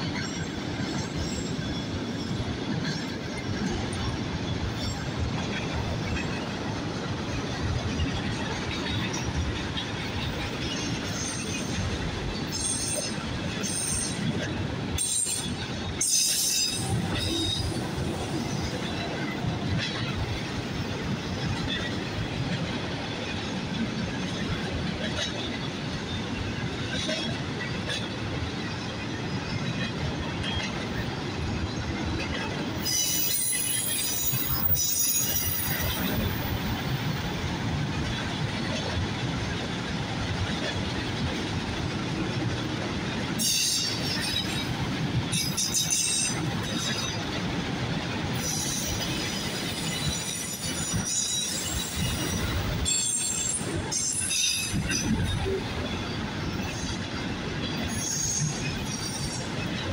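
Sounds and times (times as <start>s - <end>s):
train wheels rumbling on rail: 0.0s - 59.9s
high-pitched metal squealing: 32.8s - 36.2s.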